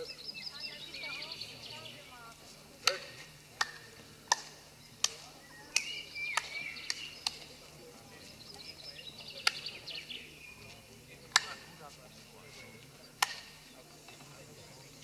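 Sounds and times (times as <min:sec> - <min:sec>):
sharp hand claps: 0:02.8 - 0:07.5, 0:09.4 - 0:09.7, 0:11.3 - 0:11.7, 0:13.2 - 0:13.6.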